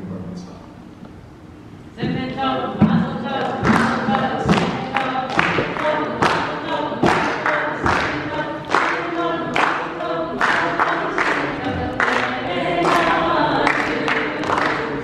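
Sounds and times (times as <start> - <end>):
congregation singing: 1.8 - 15.0
people clapping in time: 3.4 - 15.0.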